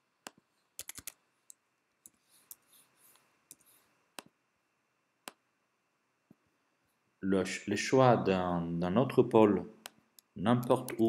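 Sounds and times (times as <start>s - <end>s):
computer mouse and keyboard clicks: 0.2s - 4.3s.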